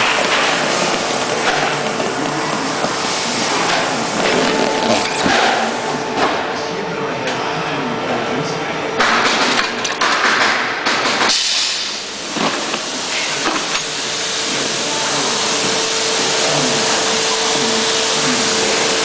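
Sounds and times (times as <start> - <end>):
machine hum: 0.0 - 11.2.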